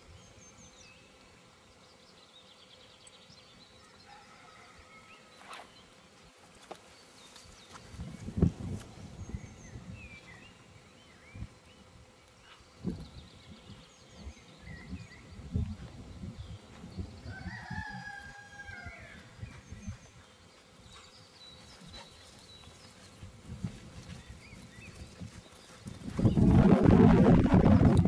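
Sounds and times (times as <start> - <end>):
rooster crowing: 4.0 - 5.3, 17.2 - 19.4.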